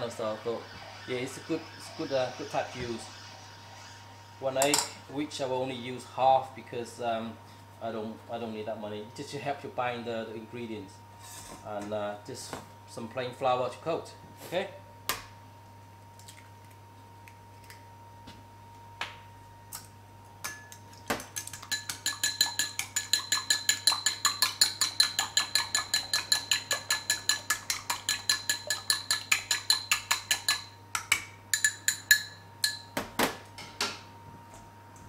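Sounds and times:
chopsticks beating egg in bowl: 21.3 - 32.8.

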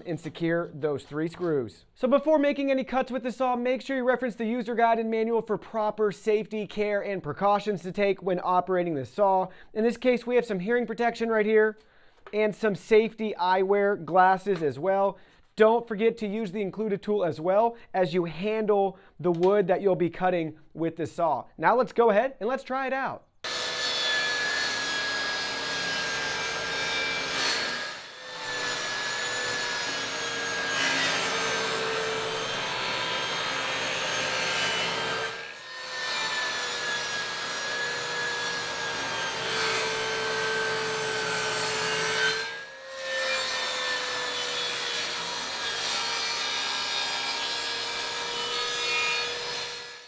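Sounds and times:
table saw cutting wood: 23.4 - 50.0.

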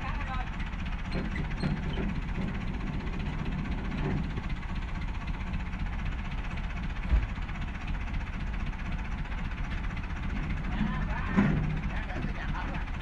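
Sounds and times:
truck engine running: 0.0 - 13.0
dull thump: 7.0 - 7.4.

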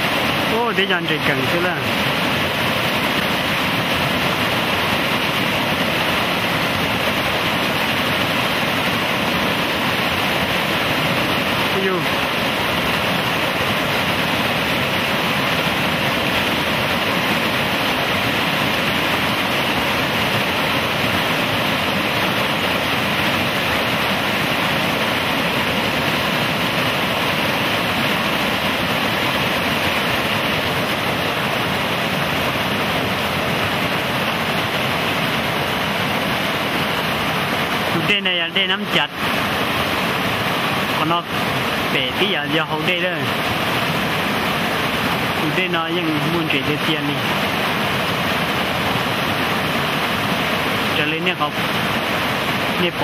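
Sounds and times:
river rapids roaring: 0.0 - 53.0.

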